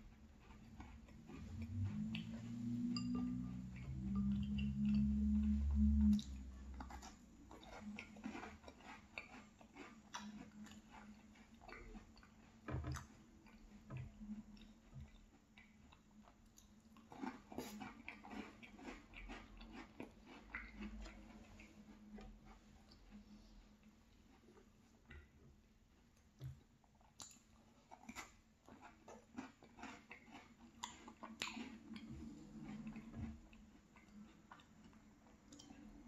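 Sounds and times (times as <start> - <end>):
close-up chewing: 0.0 - 36.0
loud low hum: 1.6 - 6.7.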